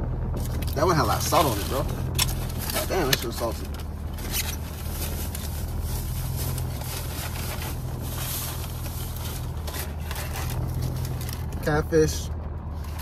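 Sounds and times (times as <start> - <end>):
low engine hum: 0.0 - 13.0
faint scrapes and rustles: 1.3 - 11.7.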